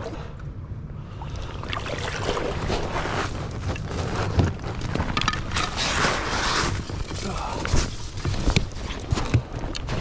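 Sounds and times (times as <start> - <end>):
water sloshing around waders: 1.2 - 4.0
crusty snow crunching: 2.3 - 10.0.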